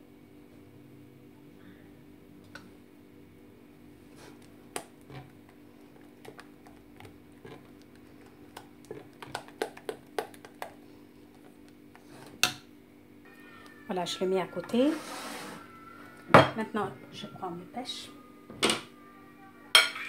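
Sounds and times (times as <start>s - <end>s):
faint steady hum: 0.0s - 20.0s
spatula stirring whipped cream: 4.1s - 12.3s.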